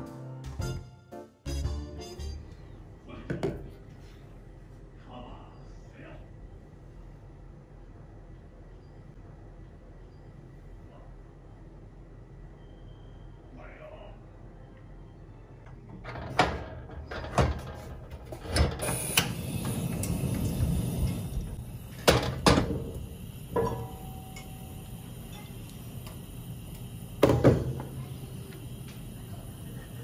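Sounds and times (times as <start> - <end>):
steady hiss: 18.8 - 30.0.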